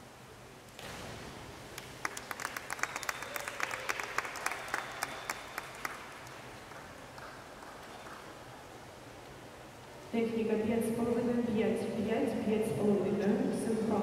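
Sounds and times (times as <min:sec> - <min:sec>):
spectators clapping: 0:01.7 - 0:08.6.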